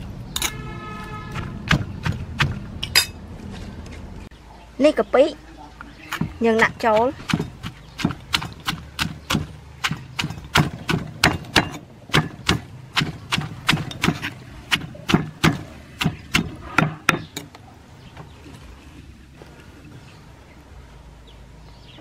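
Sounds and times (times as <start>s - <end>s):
pestle pounding in stone mortar: 1.3s - 3.0s, 6.1s - 17.4s.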